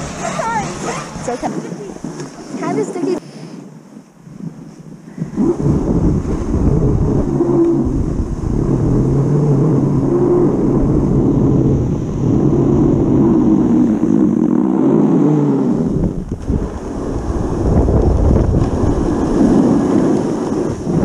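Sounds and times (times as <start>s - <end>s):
skis scraping over snow: 0.0s - 5.0s, 16.3s - 21.0s
wind buffeting microphone: 0.0s - 21.0s.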